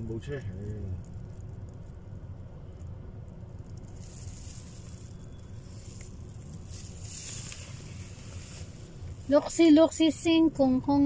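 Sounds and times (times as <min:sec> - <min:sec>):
traffic engine rumble: 0:00.0 - 0:11.0
traffic hiss: 0:03.8 - 0:11.0.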